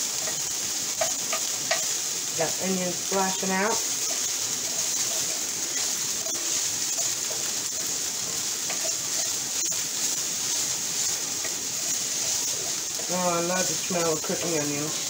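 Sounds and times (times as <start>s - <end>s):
onions sizzling in a skillet: 0.0s - 15.0s
wooden spoon scraping: 3.1s - 15.0s.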